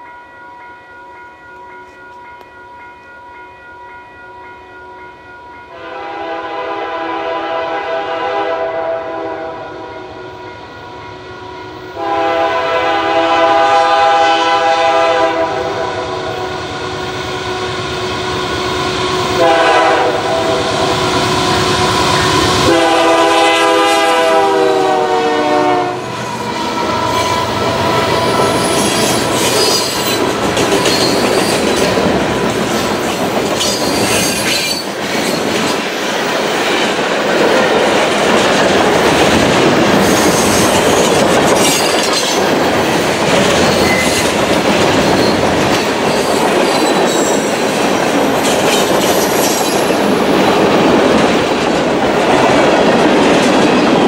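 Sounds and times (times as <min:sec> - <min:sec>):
train horn chord: 0:05.7 - 0:29.2
train wheels rolling past: 0:07.1 - 0:54.0
rail clatter: 0:26.1 - 0:54.0
high-pitched wheel squeal: 0:26.4 - 0:30.2, 0:30.8 - 0:31.7.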